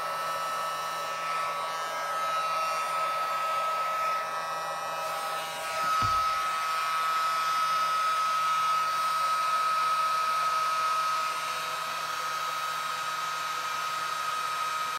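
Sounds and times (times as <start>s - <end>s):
air pump whirring: 0.8s - 7.1s
brief low thump: 5.8s - 6.4s.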